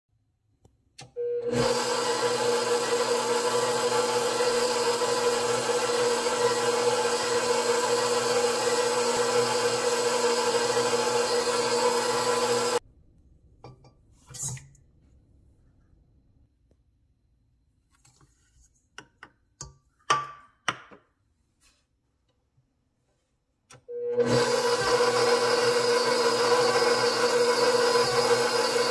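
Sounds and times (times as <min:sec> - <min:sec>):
stand mixer motor running: 0:01.4 - 0:12.8, 0:24.1 - 0:28.9.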